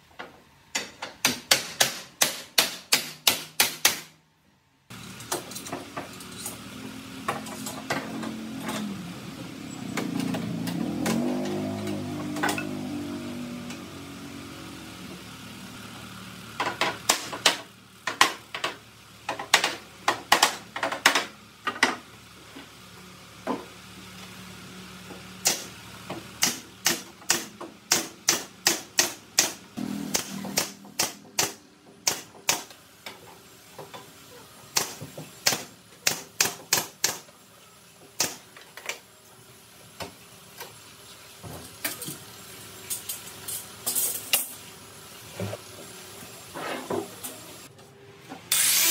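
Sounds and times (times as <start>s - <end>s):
nail gun firing into wood: 1.3s - 4.2s, 34.8s - 37.2s, 38.2s - 38.4s.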